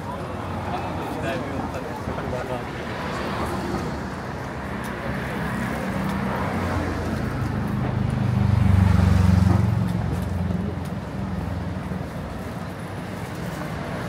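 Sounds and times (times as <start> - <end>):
street traffic noise: 0.0 - 14.0
vehicle engine passing: 5.1 - 10.8.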